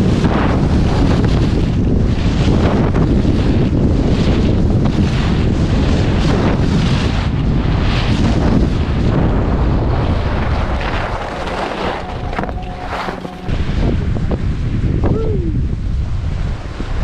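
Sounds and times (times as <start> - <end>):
wind buffeting microphone: 0.0 - 17.0
skis swishing over snow: 10.0 - 13.4.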